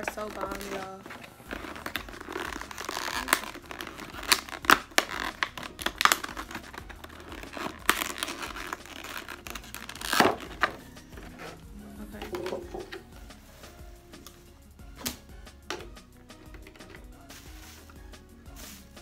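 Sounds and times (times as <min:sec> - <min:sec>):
plastic lid crackling and snapping: 0:00.0 - 0:11.4
plastic seal tearing: 0:00.0 - 0:11.6.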